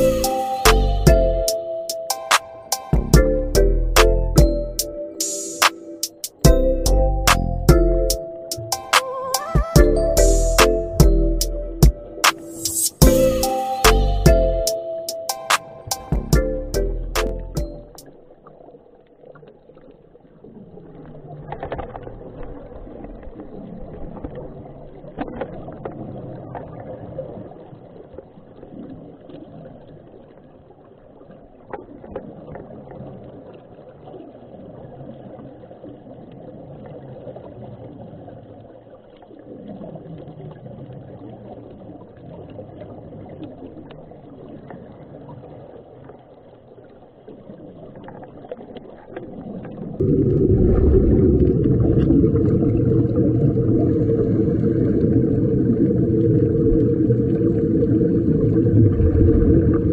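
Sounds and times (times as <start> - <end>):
underwater low rumble: 17.7 - 59.9
air bubbling and crackling: 36.4 - 59.9.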